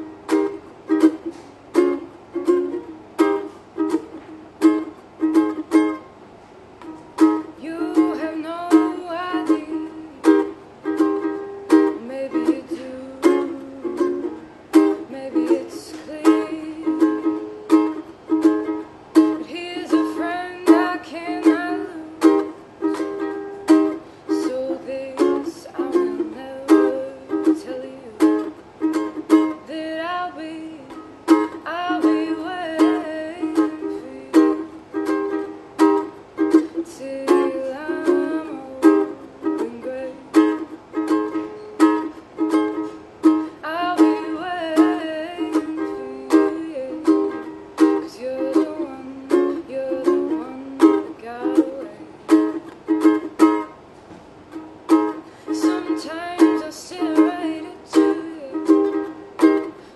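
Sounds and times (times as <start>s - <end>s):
ukulele strumming: 0.0s - 59.9s
woman singing: 7.2s - 42.1s, 42.7s - 53.4s, 55.0s - 59.8s.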